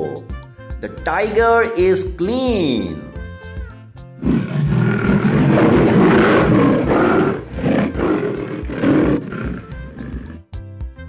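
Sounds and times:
tiger roaring: 0:04.2 - 0:10.4.

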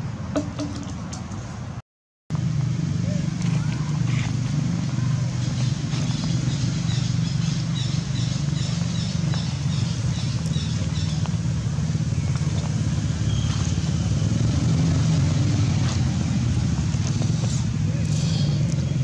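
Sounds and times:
low engine hum: 0:00.0 - 0:19.0.

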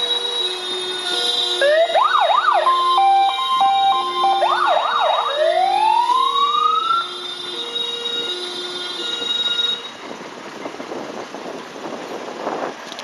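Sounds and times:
fire engine electronic siren: 0:00.0 - 0:10.1
lower two-tone siren: 0:00.0 - 0:10.1.

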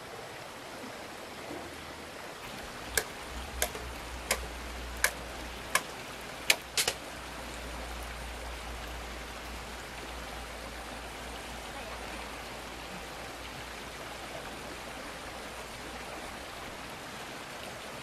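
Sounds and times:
water running over dam: 0:00.0 - 0:18.0
sharp knocks: 0:02.9 - 0:05.9, 0:06.5 - 0:07.0.

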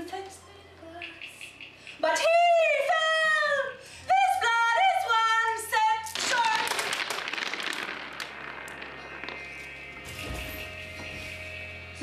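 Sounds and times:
sudden noisy burst: 0:06.2 - 0:10.3.

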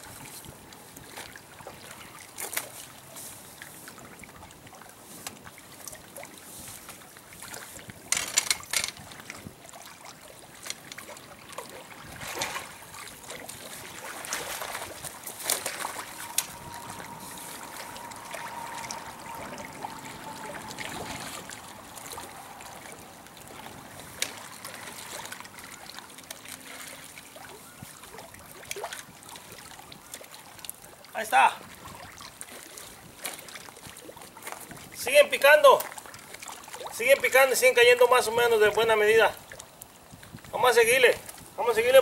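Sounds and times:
water lapping at riverbank: 0:00.0 - 0:42.0
faint steady whine: 0:14.6 - 0:25.6.

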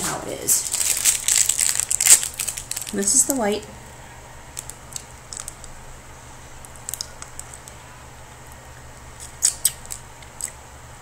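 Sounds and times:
plastic wrapper crinkling: 0:00.4 - 0:03.5, 0:04.5 - 0:05.8, 0:06.6 - 0:07.8, 0:09.2 - 0:10.6.

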